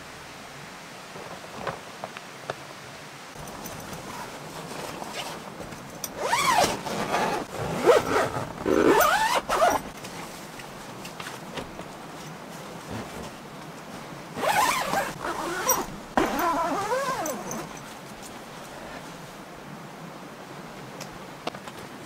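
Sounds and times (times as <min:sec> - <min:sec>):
zipper rasping: 0:06.1 - 0:09.9, 0:14.4 - 0:17.8.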